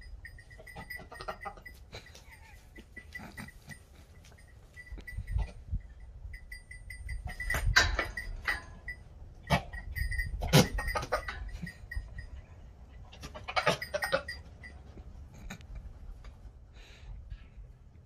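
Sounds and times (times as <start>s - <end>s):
goat guttural breathing and spitting: 0.6s - 5.7s, 13.1s - 17.6s.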